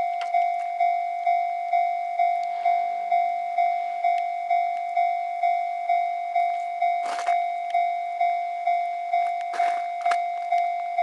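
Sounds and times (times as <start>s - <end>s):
level-crossing warning bell: 0.0s - 11.0s.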